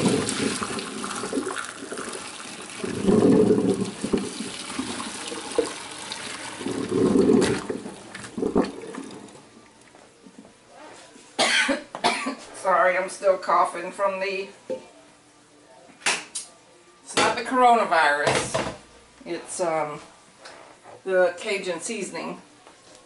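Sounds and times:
water gushing into colander: 0.0s - 9.7s.

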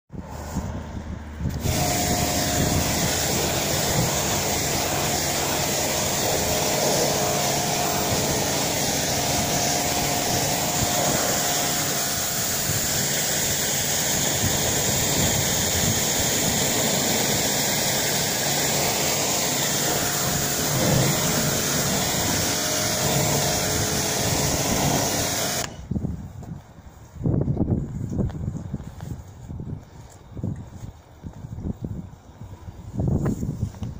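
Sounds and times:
water jet spraying on car: 1.5s - 25.8s.

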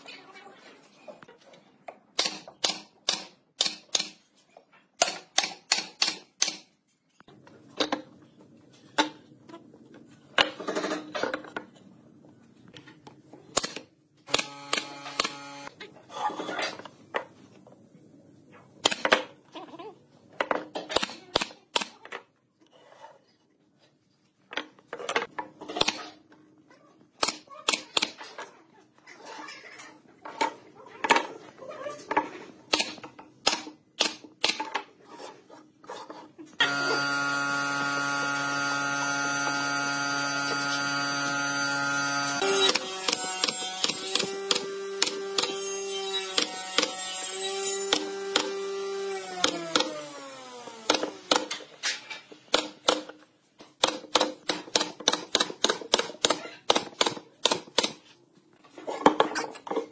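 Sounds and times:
pneumatic nailer firing: 2.2s - 4.3s, 13.5s - 15.7s, 32.7s - 34.7s, 36.6s - 45.6s, 46.2s - 51.7s.

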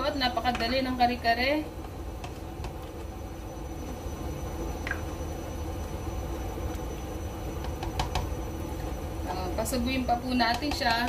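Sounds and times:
cooktop hum and whine: 0.0s - 11.0s.

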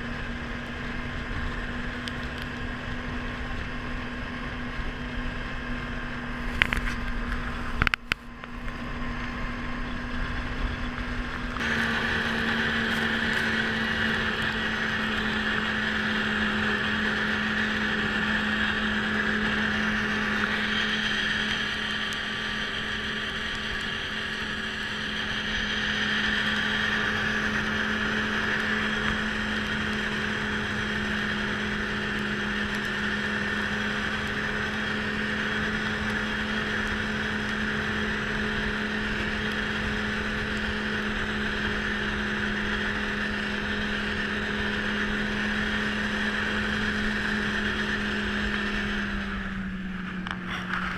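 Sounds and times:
snowmobile engine running: 0.0s - 50.9s.

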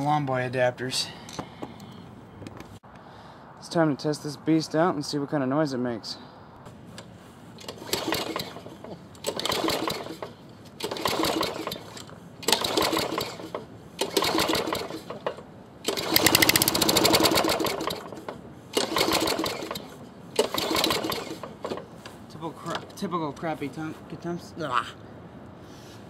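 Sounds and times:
lawn mower engine running: 6.7s - 23.1s
lawn mower engine pull-start cranking: 6.9s - 23.1s.

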